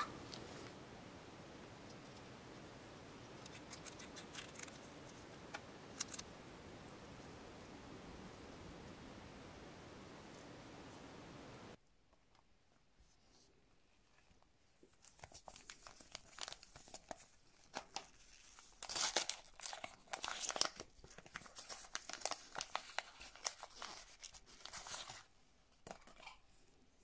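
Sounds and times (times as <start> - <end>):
paper packet crinkling: 3.4 - 6.2, 15.0 - 25.3.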